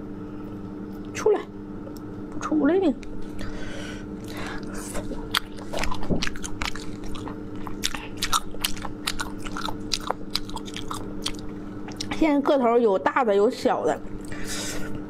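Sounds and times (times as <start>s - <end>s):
person chewing sea snails: 4.1s - 12.2s.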